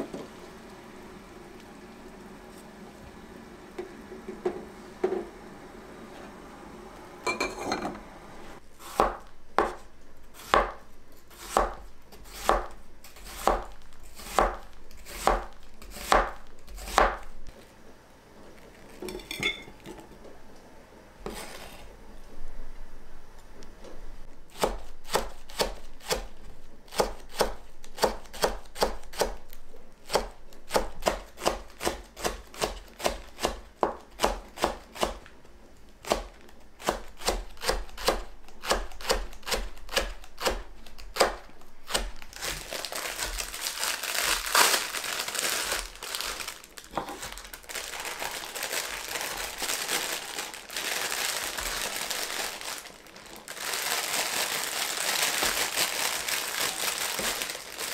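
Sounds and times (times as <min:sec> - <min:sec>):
plastic bag crinkling: 0:42.2 - 0:57.9.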